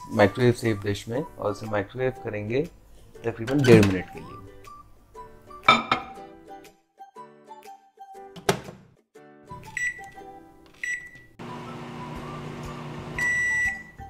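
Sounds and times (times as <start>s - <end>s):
microwave oven humming: 11.4s - 14.0s.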